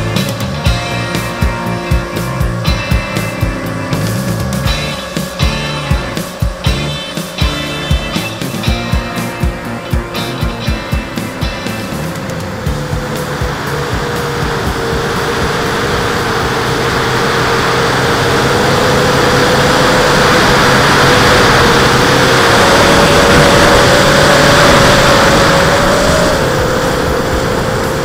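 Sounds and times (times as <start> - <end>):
drone propellers humming: 0.0 - 28.0
wind rushing: 1.0 - 28.0.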